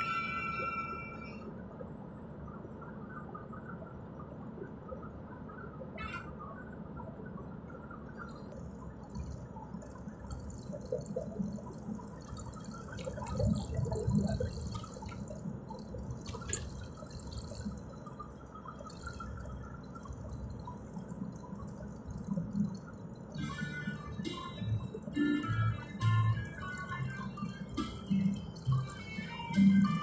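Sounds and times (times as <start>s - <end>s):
vehicle driving on paved road: 0.0s - 30.0s
small clicks and rattles: 8.0s - 30.0s.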